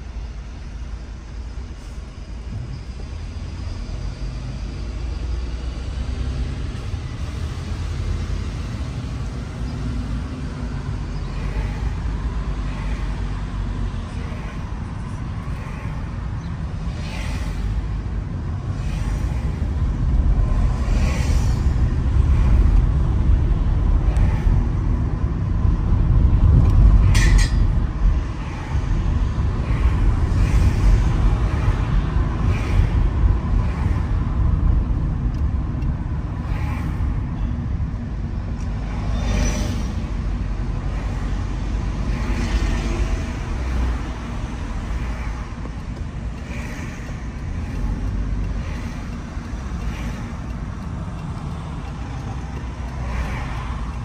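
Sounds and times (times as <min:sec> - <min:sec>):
car engine and tyre rumble: 0:00.0 - 0:54.0
traffic hisses: 0:00.4 - 0:24.9, 0:28.2 - 0:34.8, 0:36.2 - 0:37.4, 0:38.7 - 0:54.0.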